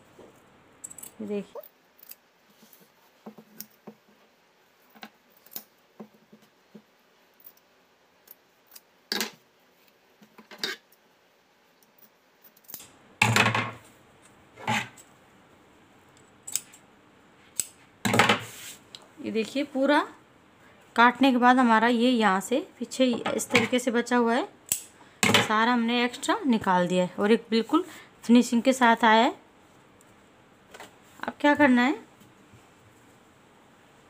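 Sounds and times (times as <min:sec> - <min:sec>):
rustling: 0:02.0 - 0:07.6.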